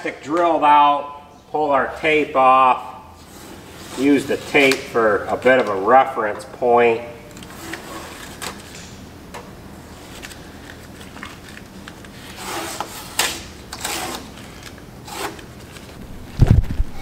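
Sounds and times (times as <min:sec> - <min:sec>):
hands rubbing tape on plastic: 0:10.0 - 0:16.6.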